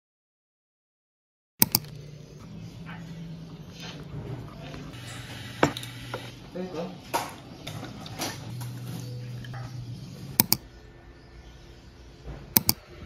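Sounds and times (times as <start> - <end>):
sharp clicks: 1.6 - 2.0, 10.4 - 10.7, 12.5 - 12.8.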